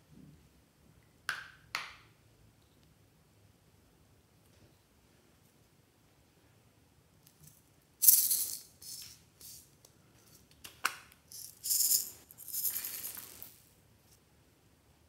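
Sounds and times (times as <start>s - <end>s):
bits rattling in plastic container: 11.3s - 13.6s.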